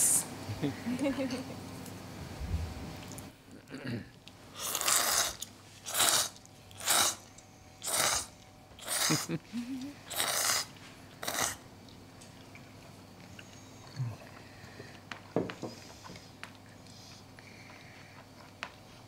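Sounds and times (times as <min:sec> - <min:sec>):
person slurping noodles: 0:04.6 - 0:07.2, 0:07.8 - 0:09.3, 0:10.1 - 0:11.6.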